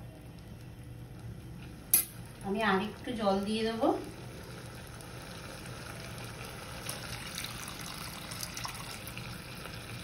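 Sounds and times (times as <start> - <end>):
water pouring into a pan: 4.4 - 10.0.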